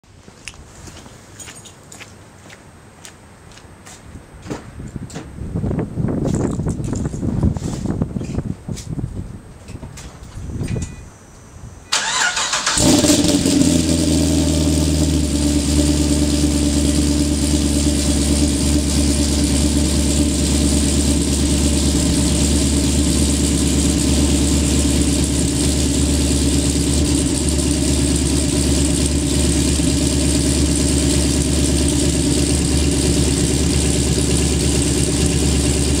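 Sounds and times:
car engine idling: 0:11.9 - 0:36.0.

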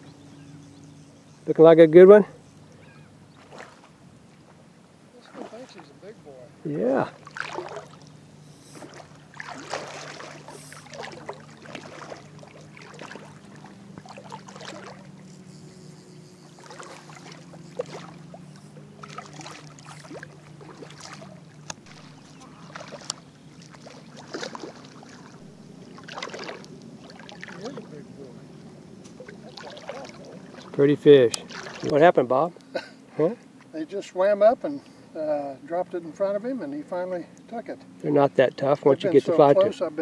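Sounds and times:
boat engine droning: 0:00.0 - 0:40.0
fish splashing in water: 0:03.4 - 0:04.0, 0:07.1 - 0:27.9, 0:29.1 - 0:31.9.

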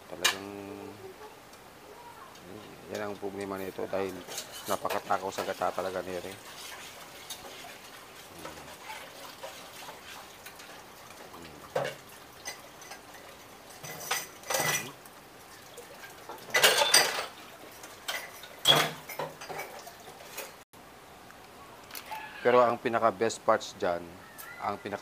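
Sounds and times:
ladle scraping metal wok: 0:04.1 - 0:10.6.

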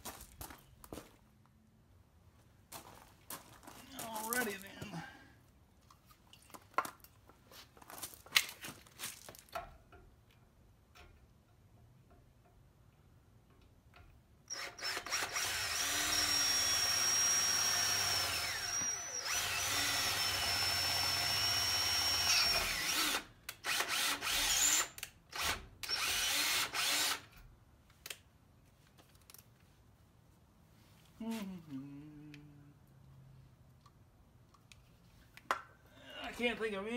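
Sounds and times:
cordless drill drilling metal: 0:14.5 - 0:27.4.

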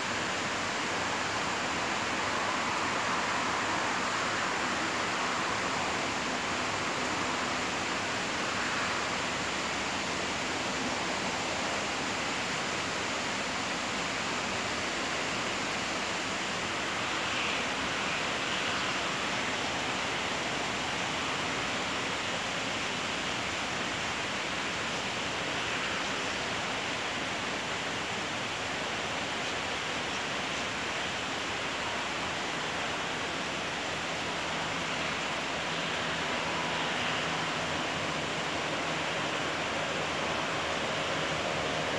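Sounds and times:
rain falling steadily: 0:00.0 - 0:41.9.

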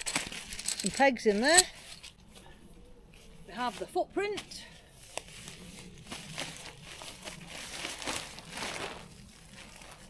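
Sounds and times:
groundsheet rustling and crinkling: 0:03.1 - 0:10.0.

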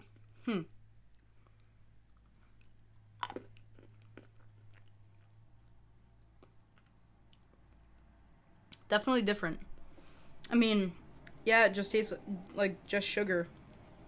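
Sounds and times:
chewing hard candy: 0:01.1 - 0:07.8.

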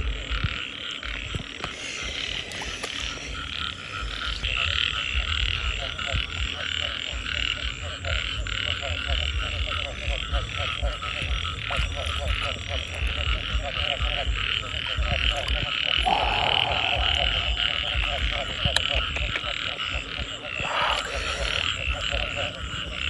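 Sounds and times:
frogs croaking pulsed calls: 0:00.0 - 0:23.0
low rumble: 0:09.2 - 0:19.3
high-pitched trilling chorus: 0:16.0 - 0:17.8.

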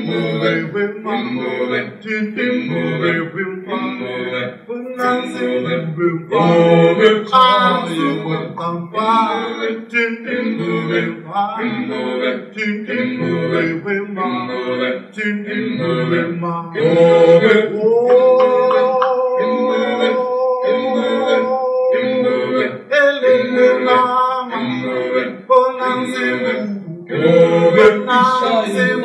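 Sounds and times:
man singing a cappella: 0:00.0 - 0:29.0.

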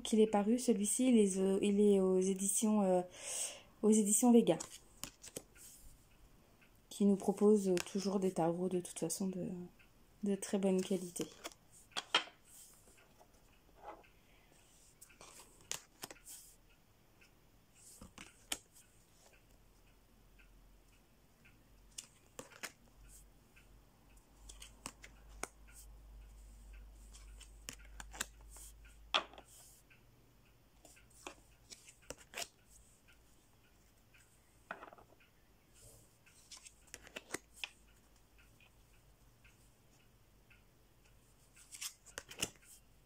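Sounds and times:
cards clicking and rubbing: 0:04.6 - 0:05.7, 0:10.8 - 0:12.7, 0:15.2 - 0:16.4, 0:22.0 - 0:22.8, 0:27.1 - 0:29.7, 0:31.2 - 0:32.5, 0:36.3 - 0:37.8, 0:41.6 - 0:42.7.

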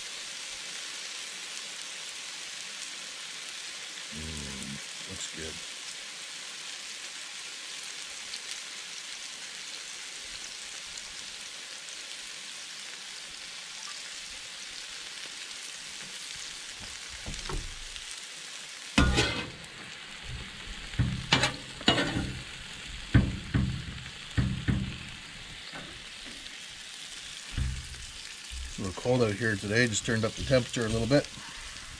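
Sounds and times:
meat sizzling on a griddle: 0:00.0 - 0:31.9
spatula clacking and scraping: 0:19.0 - 0:19.7, 0:20.3 - 0:26.0.

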